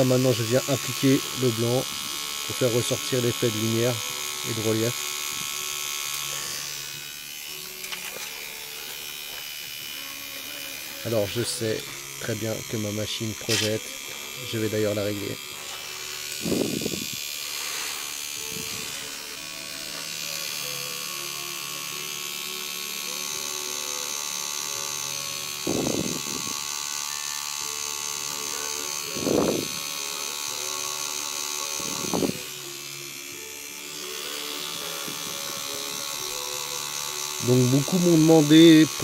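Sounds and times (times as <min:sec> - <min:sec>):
tattoo machine buzzing: 0:00.0 - 0:39.0.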